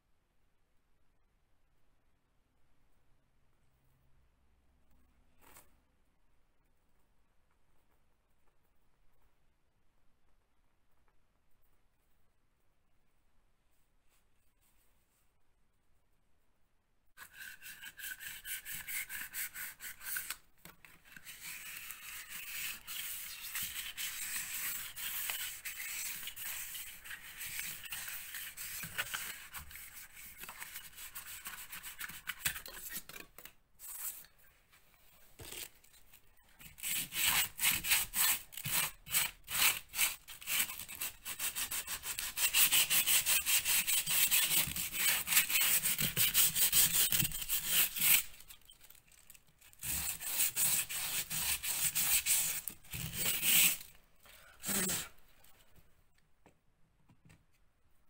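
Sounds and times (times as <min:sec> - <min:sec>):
sanding block rubbing foam: 0:17.2 - 0:20.4, 0:21.3 - 0:32.2, 0:36.8 - 0:48.2, 0:49.8 - 0:53.8
sandpaper scrubbing plaster: 0:17.2 - 0:20.4, 0:21.2 - 0:32.5, 0:36.7 - 0:48.5, 0:49.8 - 0:53.9.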